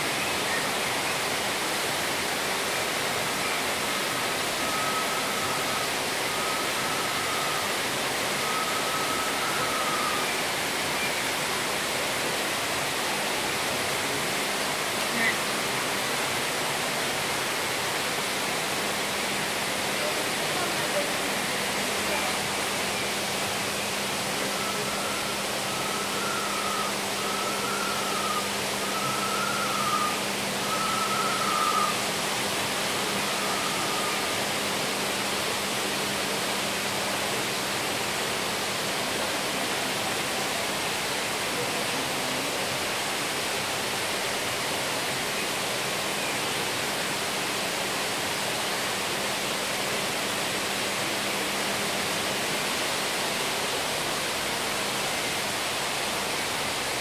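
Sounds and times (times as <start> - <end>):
rushing background noise: 0.0 - 57.0
short whistled notes: 24.4 - 32.0.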